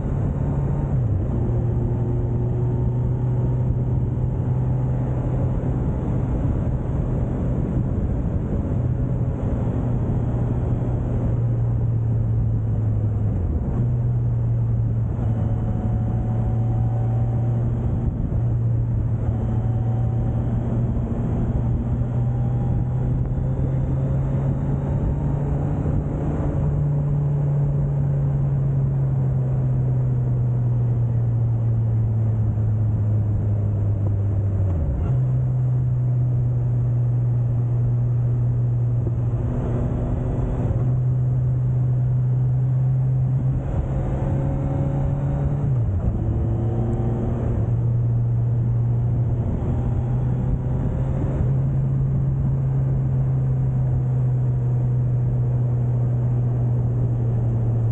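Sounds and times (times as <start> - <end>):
wind and road noise: 0.0 - 57.9.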